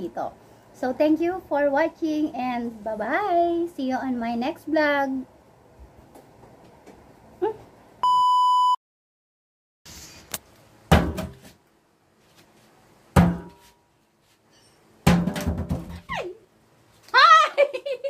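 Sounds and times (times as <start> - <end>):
electronic beep: 8.0 - 8.8.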